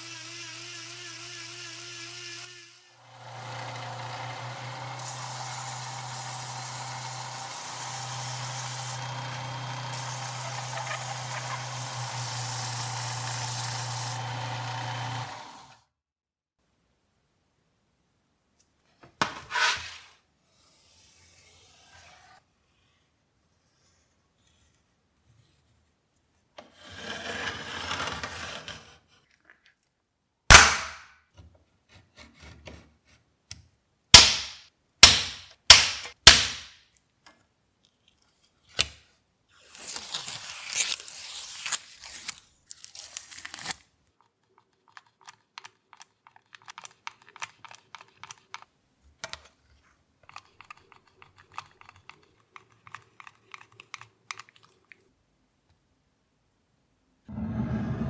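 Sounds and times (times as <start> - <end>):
protective film tearing: 10.0 - 11.8, 39.7 - 43.9
faint clicks of pieces handled: 36.9 - 39.1, 44.2 - 55.8.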